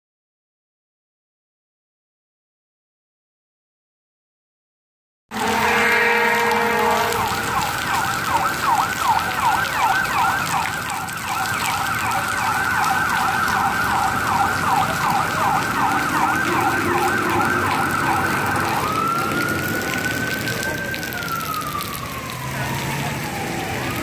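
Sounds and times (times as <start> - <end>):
emergency siren yelping: 5.3 - 24.0.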